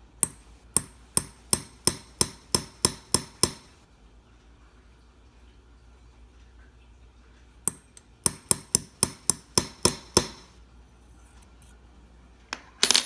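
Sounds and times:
hammer tapping metal punch: 0.0 - 3.8, 7.7 - 10.6.

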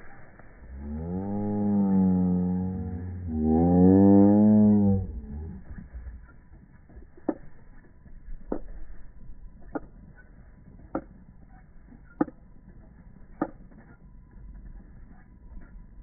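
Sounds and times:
faint low rumble: 0.0 - 16.0
sharp ticks: 3.6 - 16.0.

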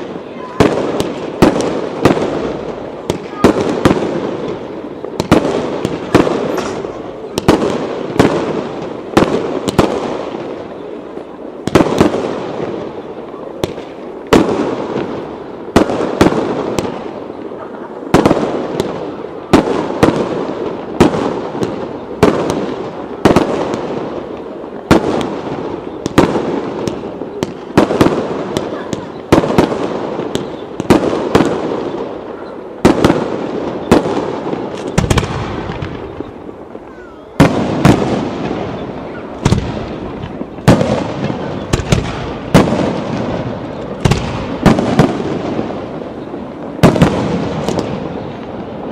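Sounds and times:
firework shells bursting: 0.6 - 10.4, 32.8 - 48.6.

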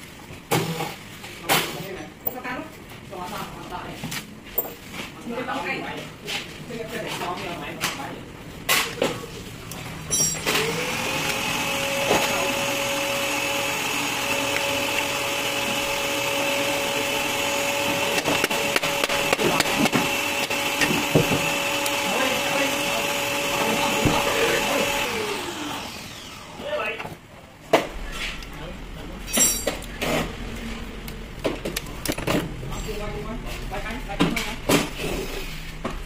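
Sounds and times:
machine motor whining: 10.4 - 27.0.

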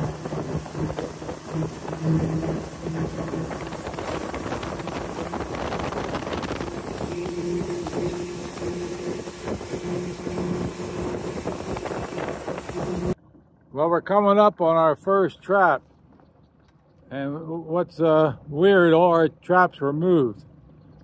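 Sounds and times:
wind buffeting microphone: 0.0 - 13.2
rush of wind and water: 0.0 - 13.4
motorboat engine hum: 0.0 - 21.0.

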